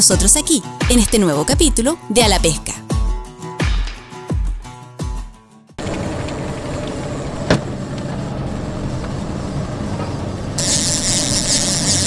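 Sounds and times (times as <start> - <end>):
motorboat engine rumble: 5.8 - 11.2.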